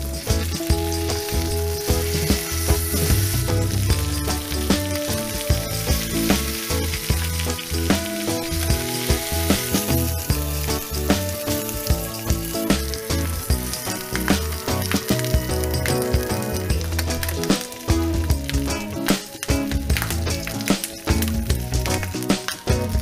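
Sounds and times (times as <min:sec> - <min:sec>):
metal tongs scraping a pan: 0:00.0 - 0:17.7
meat sizzling in a frying pan: 0:00.0 - 0:23.0.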